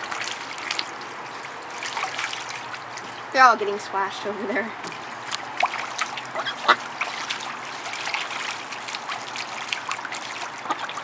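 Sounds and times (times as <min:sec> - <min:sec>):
water splashing in paddling pool: 0:00.0 - 0:11.0
ducklings peeping: 0:06.2 - 0:07.4.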